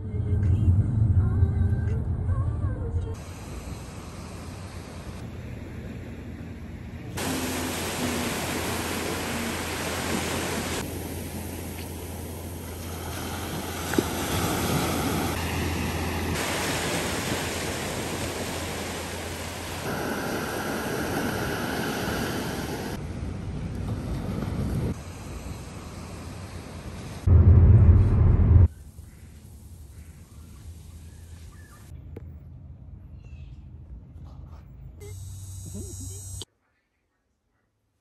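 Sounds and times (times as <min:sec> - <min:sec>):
low wind rumble: 0:00.0 - 0:34.2
surf washing onto beach: 0:07.2 - 0:23.0.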